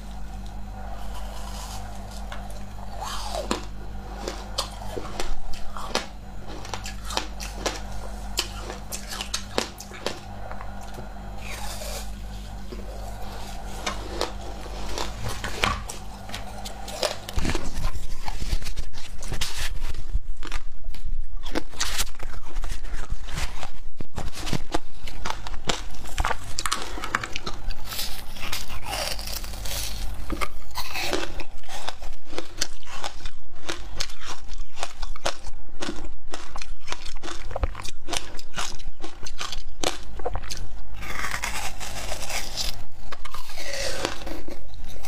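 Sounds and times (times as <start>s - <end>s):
low steady hum: 0.0s - 45.0s
teeth crunching ice: 1.2s - 10.3s, 24.2s - 45.0s.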